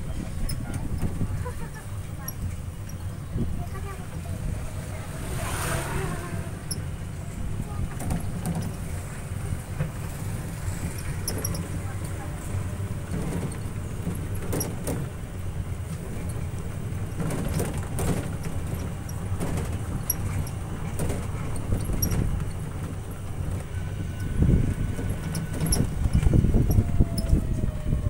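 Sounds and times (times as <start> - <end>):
body rattles and knocks: 0.0 - 4.1, 7.8 - 8.9, 12.9 - 27.5
vehicle low rumble: 0.0 - 28.0.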